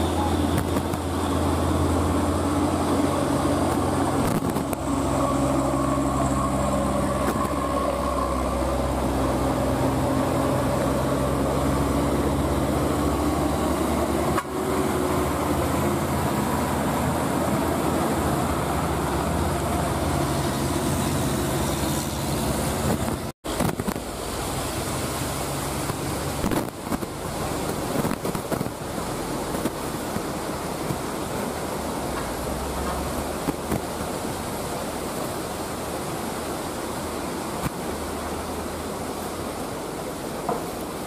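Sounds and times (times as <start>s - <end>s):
truck diesel engine: 0.0s - 28.0s
steady rushing noise: 0.0s - 41.0s
tyres hissing on wet road: 0.0s - 41.0s.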